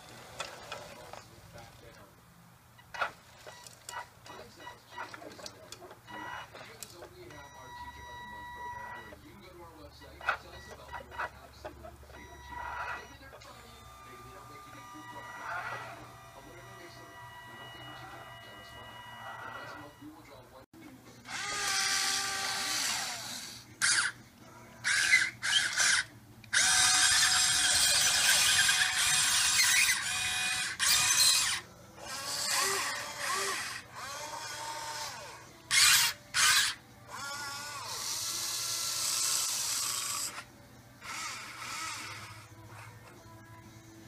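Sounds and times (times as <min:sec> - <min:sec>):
electric gear motors whining: 0:12.0 - 0:20.1, 0:21.2 - 0:24.2, 0:24.8 - 0:43.2.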